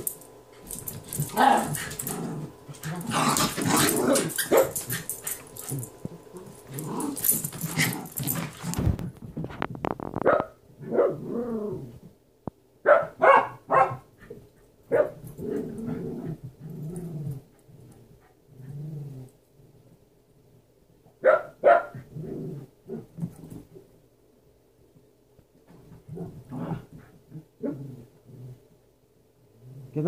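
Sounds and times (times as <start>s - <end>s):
dogs growling: 0.0s - 9.1s, 10.9s - 12.0s, 15.3s - 19.4s, 22.0s - 23.8s, 26.0s - 28.7s
dogs scuffling: 0.0s - 10.3s
dog barking: 4.5s - 4.8s, 10.2s - 11.2s, 12.8s - 14.1s, 14.9s - 15.2s, 21.2s - 22.0s.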